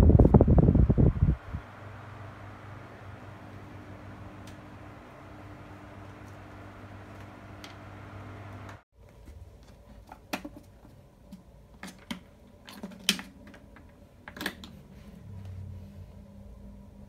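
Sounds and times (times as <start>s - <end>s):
fan motor humming: 0.0s - 8.8s.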